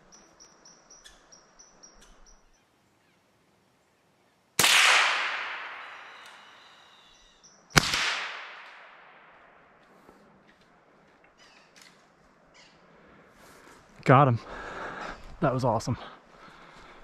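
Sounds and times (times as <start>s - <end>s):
rifle shots ringing out: 4.6s - 6.5s, 7.8s - 9.4s.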